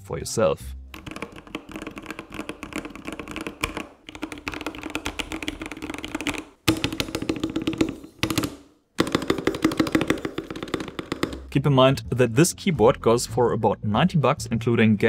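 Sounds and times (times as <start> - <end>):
mechanical keyboard typing: 0.9 - 11.5.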